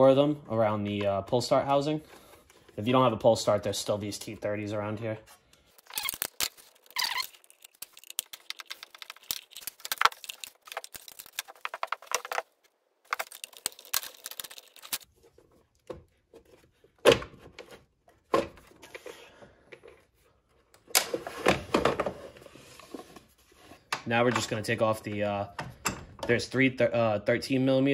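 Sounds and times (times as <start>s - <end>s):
plastic clatter and scrape: 5.8s - 19.2s.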